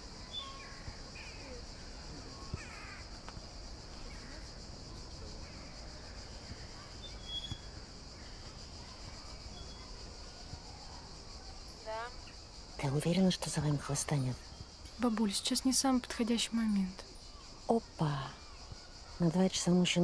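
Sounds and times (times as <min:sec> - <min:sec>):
high drone of insects: 0:00.0 - 0:20.0
bird calls: 0:00.2 - 0:03.3, 0:05.4 - 0:10.0.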